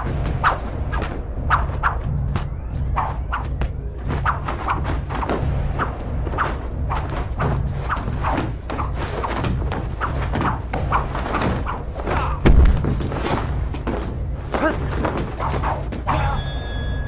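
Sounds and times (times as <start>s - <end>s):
punch and kick impacts: 3.5s - 16.1s
heavy thud: 7.0s - 16.1s.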